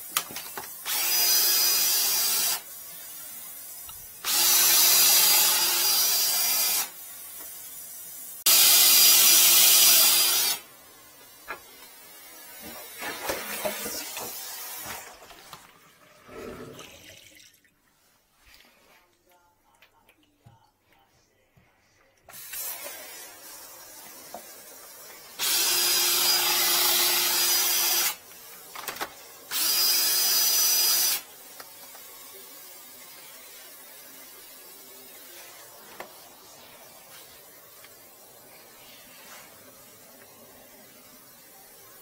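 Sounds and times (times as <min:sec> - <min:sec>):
power drill spinning drain cable: 0:00.1 - 0:02.7, 0:03.9 - 0:07.0, 0:08.5 - 0:15.7, 0:25.1 - 0:32.1.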